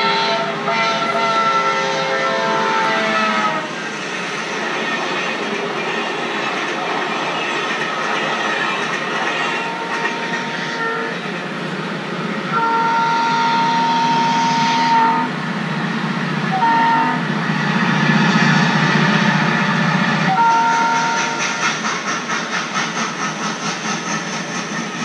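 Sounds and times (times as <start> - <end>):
locomotive horn blasts: 0.0 - 3.7, 9.6 - 11.2, 12.5 - 15.3, 16.5 - 17.2, 20.3 - 21.4
passing train rumble: 0.0 - 25.0
rhythmic clatter: 20.5 - 25.0.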